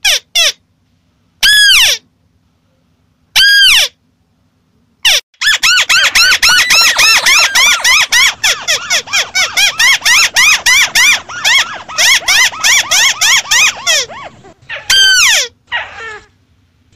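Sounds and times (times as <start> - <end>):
crake chirping: 5.4 - 15.4.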